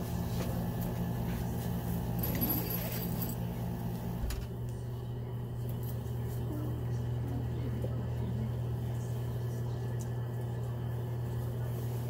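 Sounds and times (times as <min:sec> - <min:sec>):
light metallic jingle: 0:02.2 - 0:03.5.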